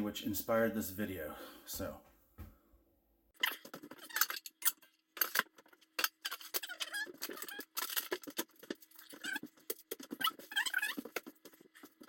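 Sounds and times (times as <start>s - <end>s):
short squeaks: 6.0s - 8.2s, 9.0s - 11.4s.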